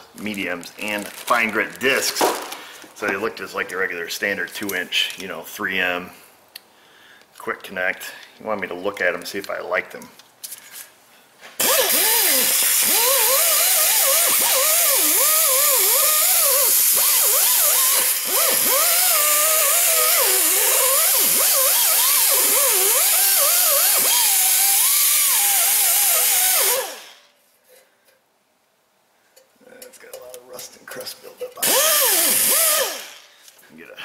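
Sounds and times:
air die grinder whining: 11.6 - 27.2, 31.6 - 33.3.

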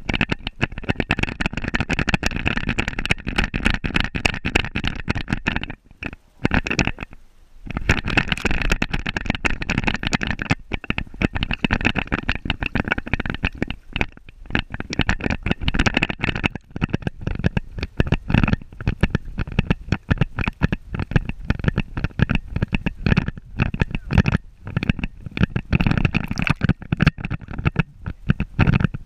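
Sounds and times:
water splashing and sloshing: 24.7 - 28.9.

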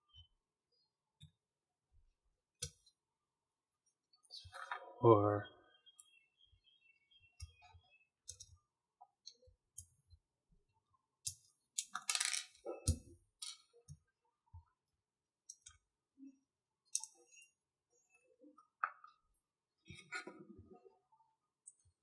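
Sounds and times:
small parts clicking and clinking: 11.2 - 13.7.

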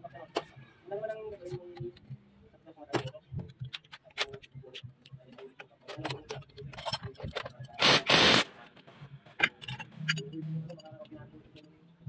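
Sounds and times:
cordless impact wrench: 7.8 - 8.5.

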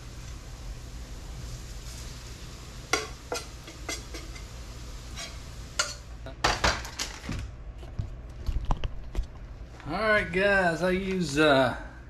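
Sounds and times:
hot oil sizzling: 0.0 - 7.2
spoon clinking against pans: 2.9 - 4.5, 5.2 - 6.0.

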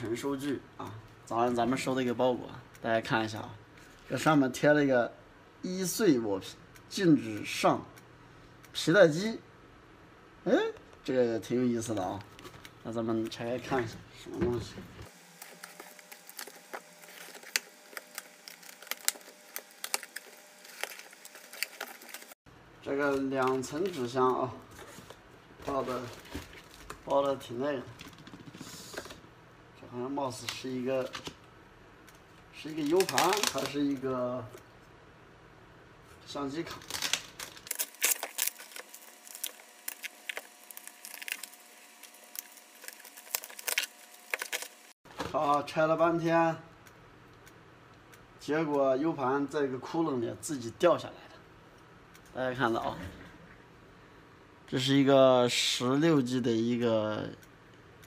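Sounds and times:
packing material rustling: 15.0 - 22.4, 23.0 - 29.2, 32.6 - 34.1, 36.3 - 45.4.

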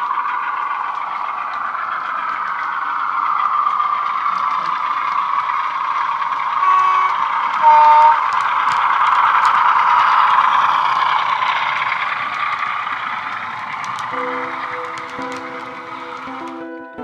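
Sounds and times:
model locomotive engine sound: 0.0 - 17.0
two-note horn toots: 6.6 - 8.2.

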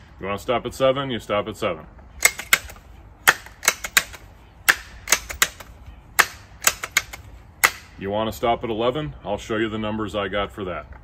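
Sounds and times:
air rifle pump lever clicking: 2.2 - 7.9.

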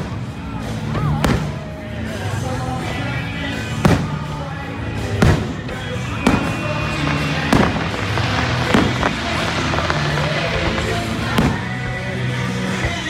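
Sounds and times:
music: 0.0 - 13.0
fireworks booming: 3.7 - 13.0.

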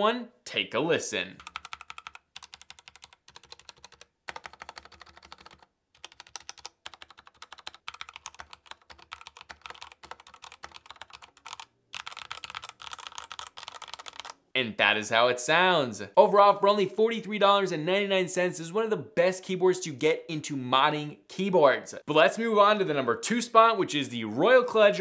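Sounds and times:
mechanical keyboard typing: 1.4 - 14.4.

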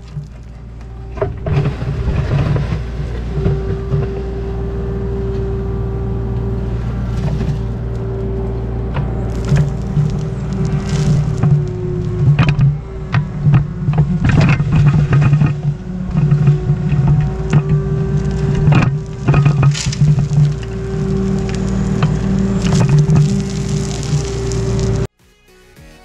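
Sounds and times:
excavator engine running: 0.0 - 25.1
bucket knocking and crunching ground: 8.9 - 25.1.

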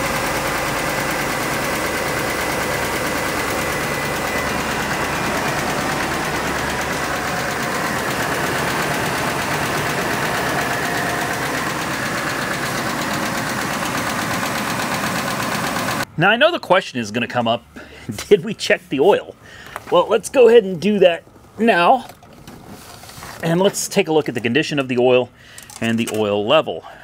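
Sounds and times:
engine tapping noise: 0.0 - 16.1
truck engine idling: 0.0 - 16.1.

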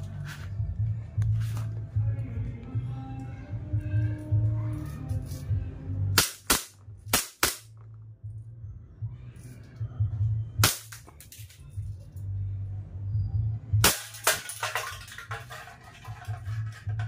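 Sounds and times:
background music: 0.0 - 17.0
airsoft pistol shots: 6.2 - 7.7, 10.6 - 11.1.

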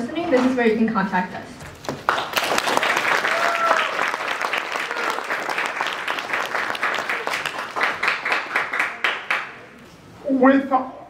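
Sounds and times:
audience applauding: 1.8 - 9.7.

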